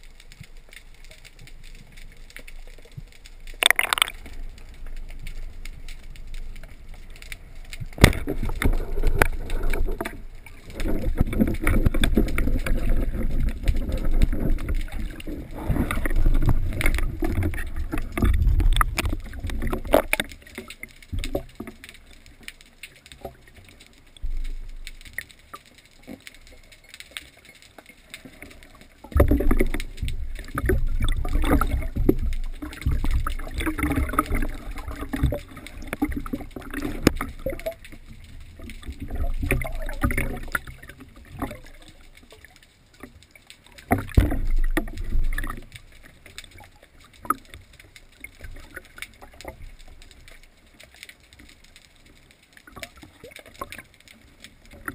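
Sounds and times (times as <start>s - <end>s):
seawater sloshing and splashing: 7.8s - 21.6s, 29.1s - 42.6s.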